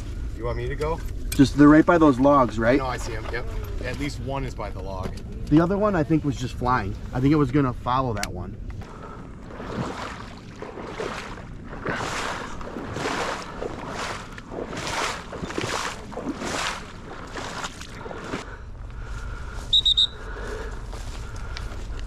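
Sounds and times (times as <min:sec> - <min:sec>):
footsteps sloshing through water: 0:08.7 - 0:22.0
sharp whistle blasts: 0:19.7 - 0:20.3.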